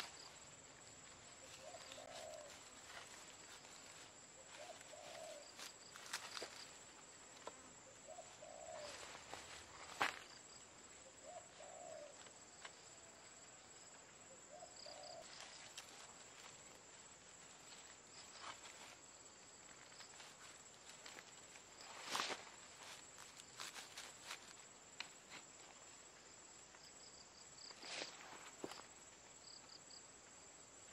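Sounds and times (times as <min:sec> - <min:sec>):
dry grass and twigs crackling: 0:00.0 - 0:10.4, 0:14.9 - 0:25.8
insect drone: 0:00.0 - 0:30.9
dove cooing: 0:01.4 - 0:03.1, 0:04.4 - 0:05.6, 0:07.9 - 0:09.4, 0:11.0 - 0:12.2, 0:14.3 - 0:15.5.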